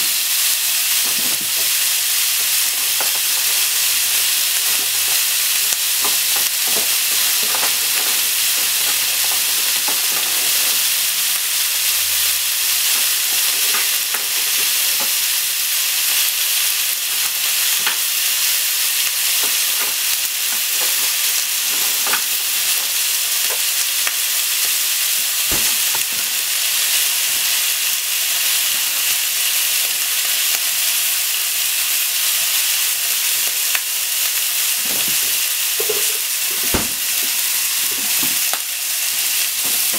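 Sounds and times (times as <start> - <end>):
meat sizzling in frying pan: 0.0 - 39.9
fat popping and crackling: 0.9 - 11.2, 19.4 - 27.4, 34.7 - 38.8.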